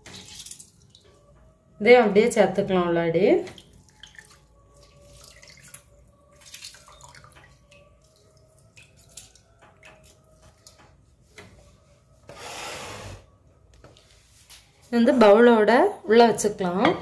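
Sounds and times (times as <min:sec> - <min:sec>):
water splashing: 0:03.4 - 0:10.8
juice dripping: 0:03.4 - 0:11.0.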